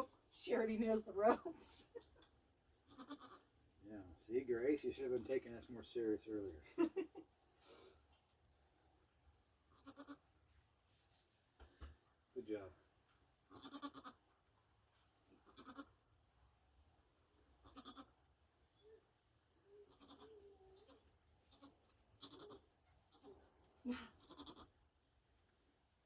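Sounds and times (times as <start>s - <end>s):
goats bleating: 2.9s - 3.5s, 9.8s - 10.2s, 13.5s - 14.2s, 15.4s - 15.9s, 17.6s - 18.1s, 19.9s - 20.9s, 21.5s - 23.4s, 24.2s - 24.7s.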